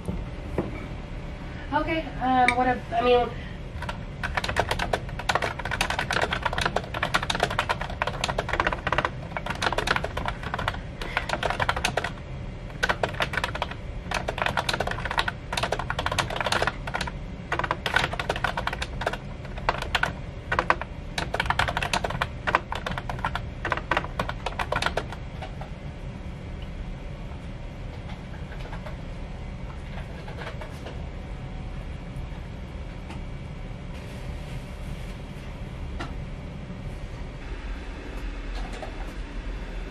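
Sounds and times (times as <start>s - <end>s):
fast typing on keyboard: 3.8s - 25.2s.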